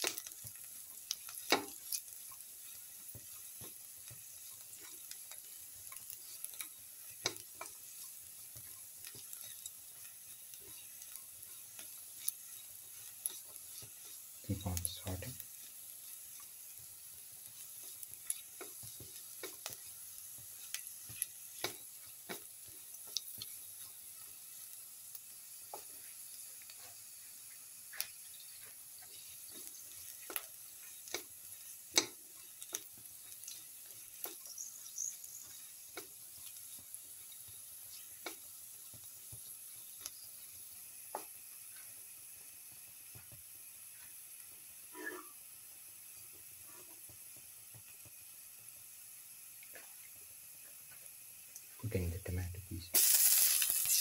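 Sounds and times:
spatula scraping a pan: 0.0s - 24.7s, 25.6s - 38.5s, 44.9s - 45.4s, 46.6s - 47.1s
shallots sizzling in oil: 0.0s - 54.0s.

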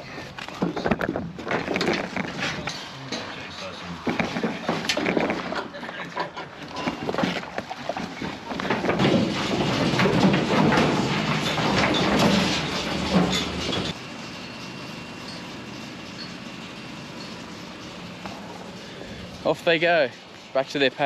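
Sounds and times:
sheep hooves clattering on truck floor: 4.0s - 14.0s.

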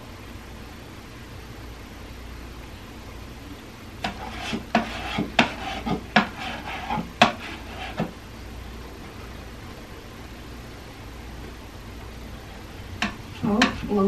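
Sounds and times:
painting tool scraping a plate: 4.0s - 8.2s, 13.0s - 14.0s.

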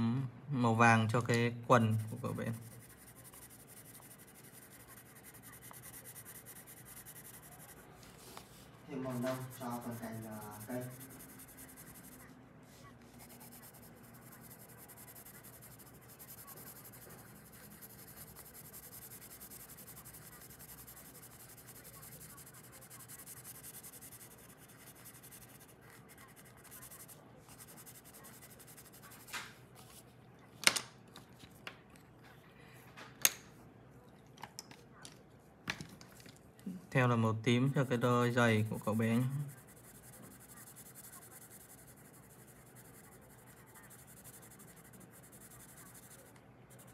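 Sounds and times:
pencil scratching on paper: 1.8s - 30.1s, 37.7s - 46.9s.

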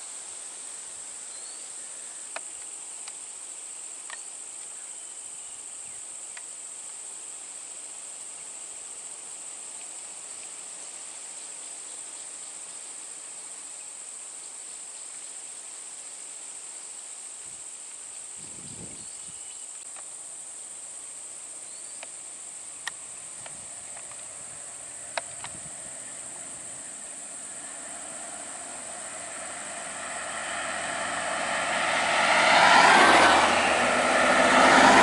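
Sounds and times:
insects droning: 0.0s - 35.0s
faint sharp clicks: 4.1s - 4.7s.

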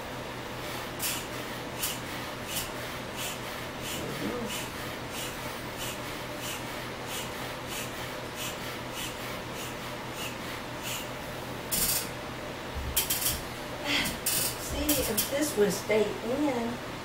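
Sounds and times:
foot pump hissing air: 0.9s - 12.1s, 13.0s - 15.3s.

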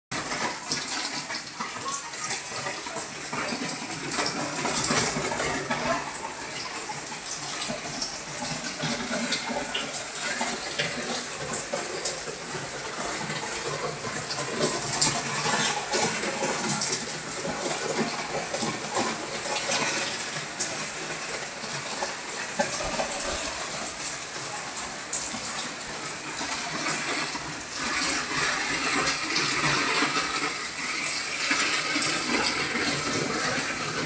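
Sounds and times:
small crackles and drips: 0.1s - 34.0s
water splashing: 0.1s - 34.0s.

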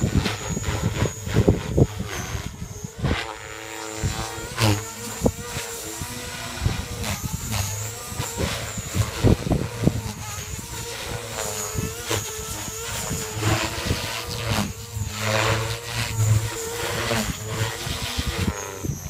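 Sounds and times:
rc helicopter motor whine: 0.0s - 19.0s
rotor whoosh: 0.0s - 19.0s.

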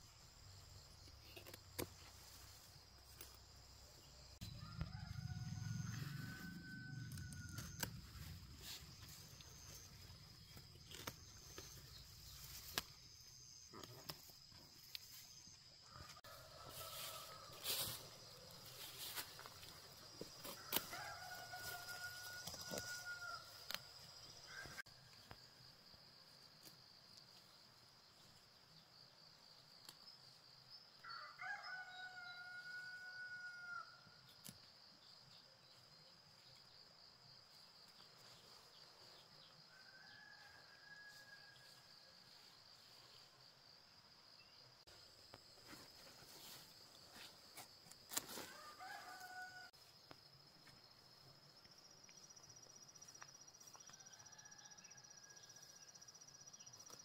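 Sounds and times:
high insect whine: 1.5s - 27.4s
rooster crowing: 4.4s - 8.0s, 15.9s - 17.8s, 20.5s - 23.6s, 31.0s - 34.0s, 39.7s - 41.8s, 48.5s - 49.8s, 54.0s - 56.0s.

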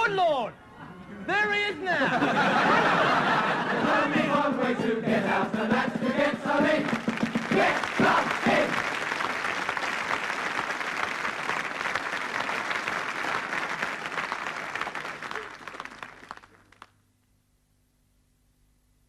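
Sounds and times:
audience applauding: 6.7s - 16.9s.

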